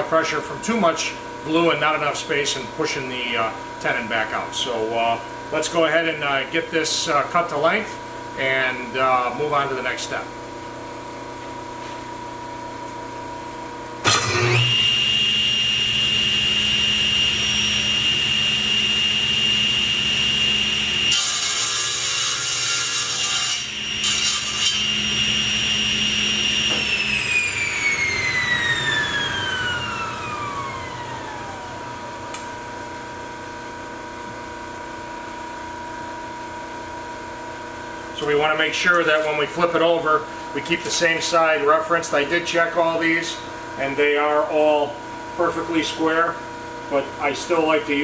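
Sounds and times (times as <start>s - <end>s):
table saw whine: 13.9s - 48.0s
saw cutting wood: 14.0s - 31.6s
saw blade winding down: 14.0s - 31.8s.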